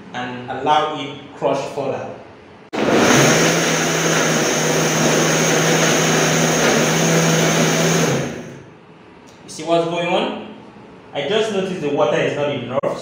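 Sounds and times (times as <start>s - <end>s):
blender motor whining and grinding: 2.8s - 8.7s.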